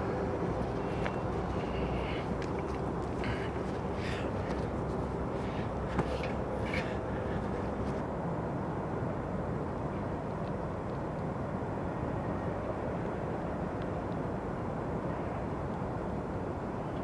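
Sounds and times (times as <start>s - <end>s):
distant freight train rumble: 0.0s - 8.4s.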